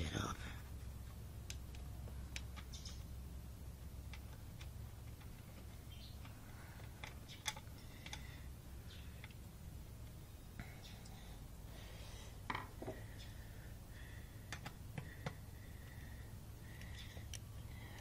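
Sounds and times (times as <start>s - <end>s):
low steady hum: 0.0s - 18.0s
small clicks of parts on metal: 4.1s - 8.4s.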